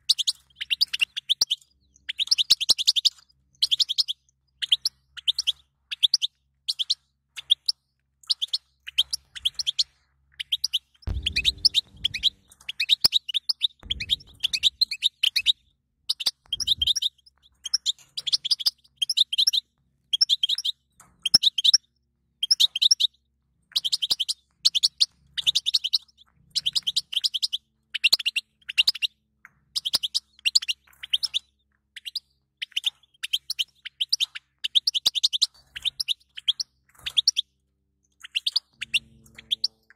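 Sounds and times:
goldfinch singing: 0:00.0 - 0:21.8, 0:22.4 - 0:29.1, 0:29.8 - 0:37.5, 0:38.2 - 0:39.9
low bumps: 0:11.1 - 0:12.6, 0:13.8 - 0:15.7.

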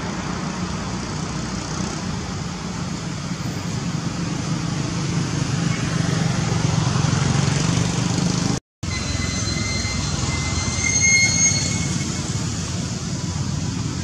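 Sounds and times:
outdoor background noise: 0:00.0 - 0:14.0
thin high whistling tone: 0:08.8 - 0:12.4.

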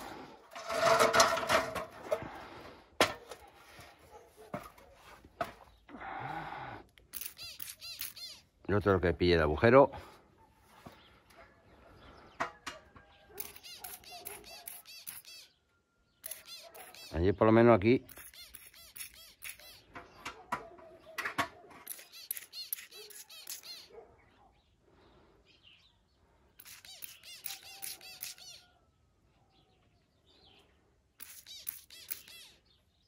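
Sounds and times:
small birds chirping: 0:05.6 - 0:09.0, 0:10.3 - 0:33.0.

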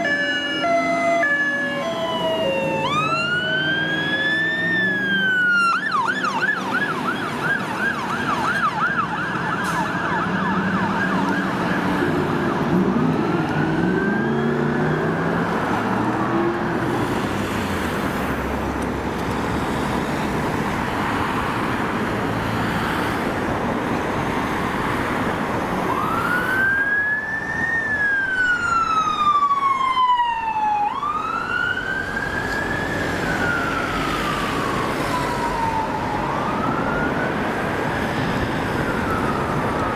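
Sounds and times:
fire engine siren: 0:00.0 - 0:18.6, 0:24.1 - 0:39.9
engine and traffic noise: 0:00.0 - 0:39.9.

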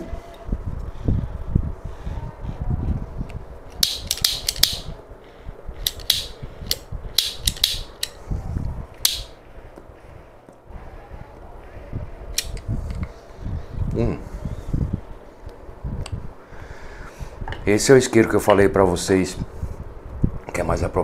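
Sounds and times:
wind rumble on microphone: 0:00.0 - 0:21.0
small hard objects clicking: 0:03.8 - 0:04.9, 0:05.8 - 0:08.2.

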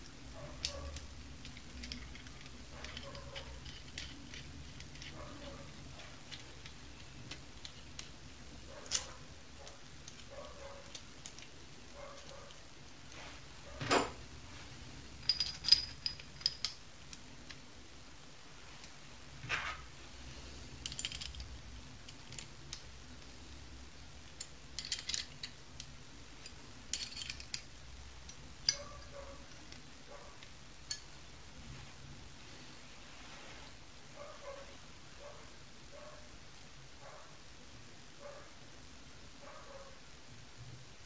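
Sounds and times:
metal parts clicking and clinking: 0:00.0 - 0:13.1, 0:15.2 - 0:17.6, 0:20.8 - 0:22.9, 0:24.2 - 0:31.2.

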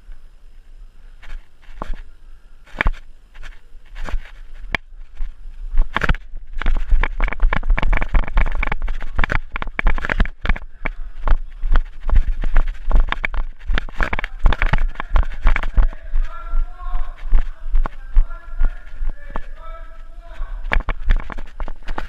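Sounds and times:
running footsteps crunching: 0:01.2 - 0:22.0
camera bumping: 0:05.8 - 0:19.6, 0:20.6 - 0:22.0.

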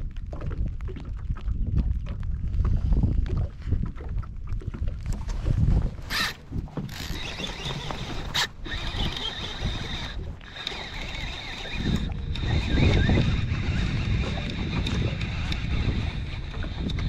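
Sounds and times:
wind buffeting microphone: 0:00.0 - 0:17.0
sharp clicks: 0:06.1 - 0:17.0.

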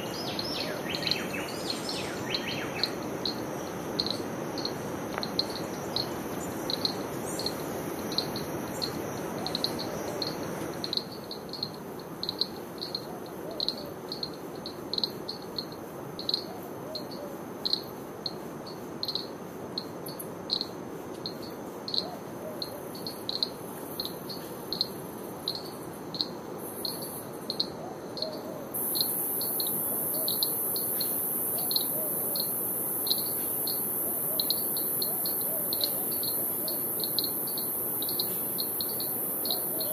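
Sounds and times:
insect chirping: 0:00.0 - 0:39.9
very high hiss: 0:28.7 - 0:39.9
high-pitched insect drone: 0:28.8 - 0:39.9.

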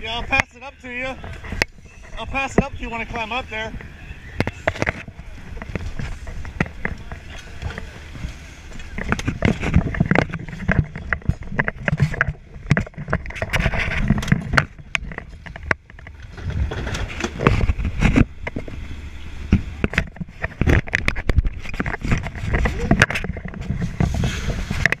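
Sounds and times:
low steady rumble: 0:00.0 - 0:25.0
debris knocking and scraping: 0:08.8 - 0:18.8.

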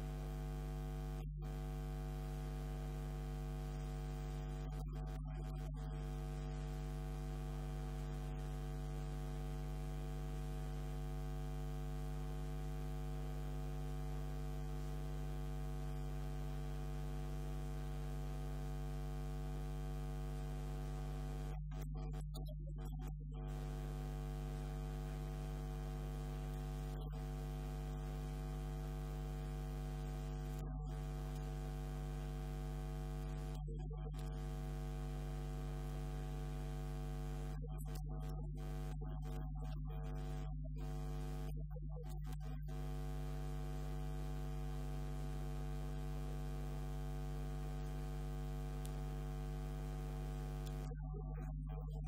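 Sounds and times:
electrical mains hum: 0:00.0 - 0:00.3.

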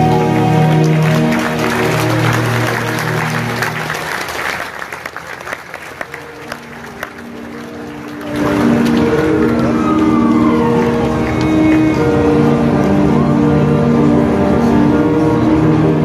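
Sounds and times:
audience applause: 0:00.0 - 0:12.8
held musical chords: 0:06.1 - 0:16.0
slowly falling tone: 0:08.4 - 0:14.3.

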